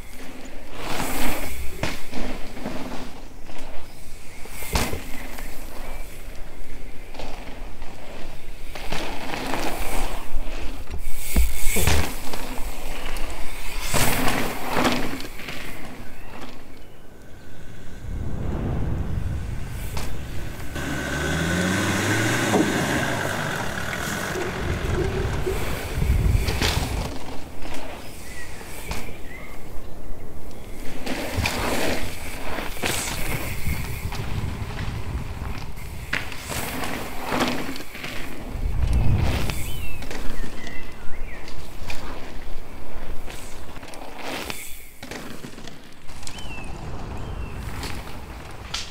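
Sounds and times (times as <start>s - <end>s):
tyres skidding on gravel: 11.6s - 29.2s, 30.8s - 48.9s
gravel spray: 17.2s - 28.8s.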